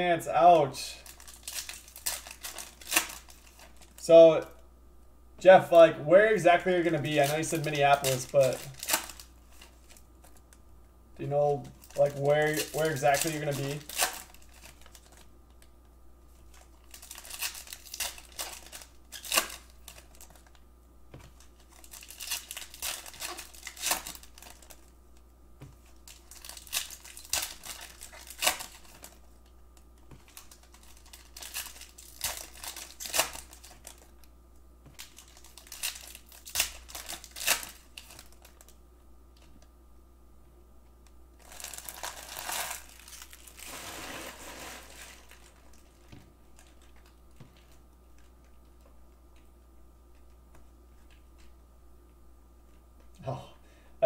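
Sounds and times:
foil wrappers crinkling and tearing: 0:00.9 - 0:04.1, 0:06.6 - 0:10.5, 0:11.4 - 0:15.7, 0:16.3 - 0:20.6, 0:21.2 - 0:24.9, 0:25.8 - 0:34.3, 0:35.0 - 0:38.8, 0:41.4 - 0:48.5.

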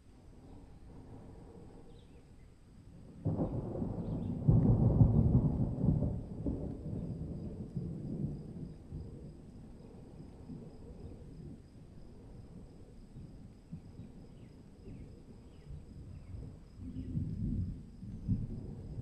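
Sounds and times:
thunder rumble: 0:00.4 - 0:19.0.

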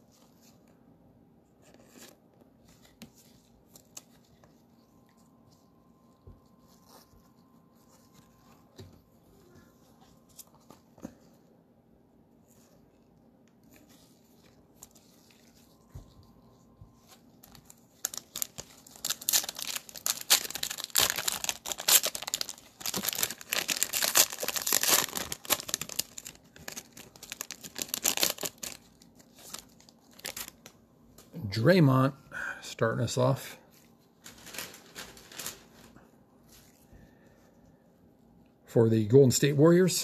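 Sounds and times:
cellophane wrapper crinkling: 0:13.6 - 0:30.8, 0:33.8 - 0:36.8.

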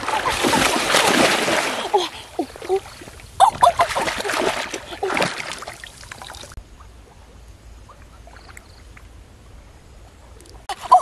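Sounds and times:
splashing through shallow water: 0:00.0 - 0:06.6
water trickling: 0:04.2 - 0:06.6.

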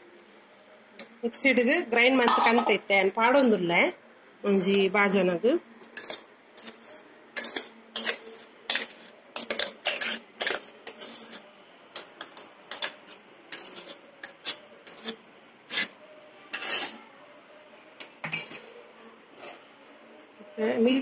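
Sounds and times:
metal spoon scraping steel jar: 0:06.0 - 0:17.0.

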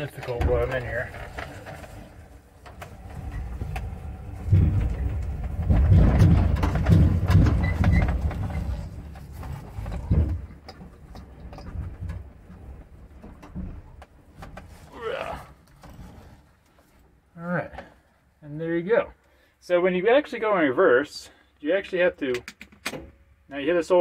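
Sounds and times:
low rumbling and knocking: 0:00.0 - 0:14.8
clicks and rattles in truck cab: 0:00.0 - 0:14.9, 0:22.2 - 0:23.3.

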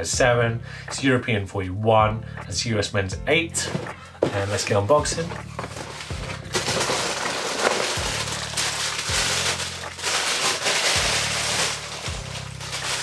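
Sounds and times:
background music with bass: 0:00.0 - 0:13.0
tissue paper rustling: 0:03.7 - 0:13.0.

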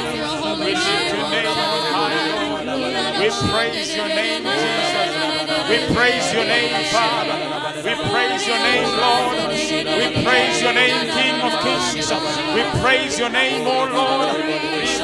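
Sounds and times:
group singing worship song: 0:00.0 - 0:15.0.

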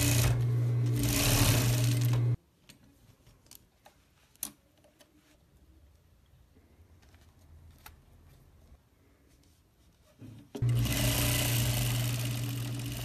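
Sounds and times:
sewing machine stitching: 0:00.0 - 0:02.4, 0:10.6 - 0:13.0.

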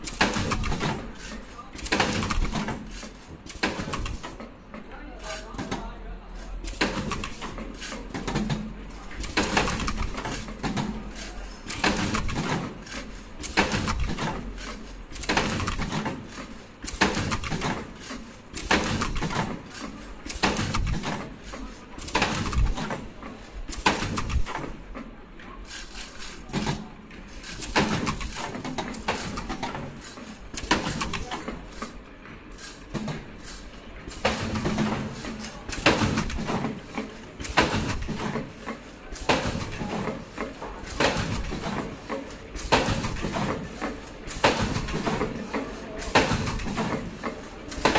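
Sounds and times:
machine parts clacking: 0:00.0 - 0:47.9.

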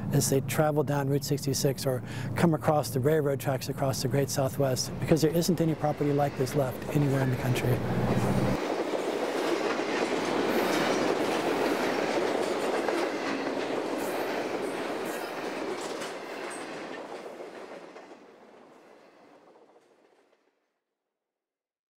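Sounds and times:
train wheels rushing on rail: 0:01.2 - 0:20.4
wheel clacks: 0:04.3 - 0:20.2.

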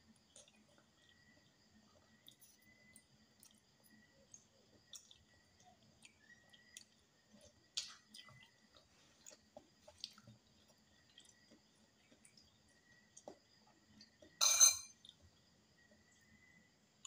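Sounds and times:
chewing: 0:00.0 - 0:14.4
metal spoon clicking on glass bowl: 0:14.4 - 0:14.9.

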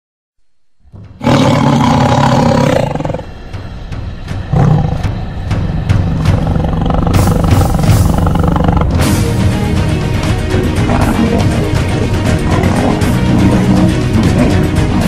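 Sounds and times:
intro music with steady beat: 0:00.5 - 0:15.0
big cat roaring: 0:01.2 - 0:03.4, 0:04.5 - 0:09.1, 0:10.7 - 0:15.0.

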